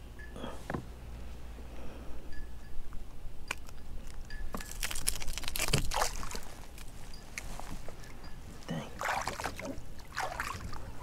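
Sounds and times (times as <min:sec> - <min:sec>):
water splashing and trickling: 0:05.4 - 0:06.5, 0:08.7 - 0:11.0.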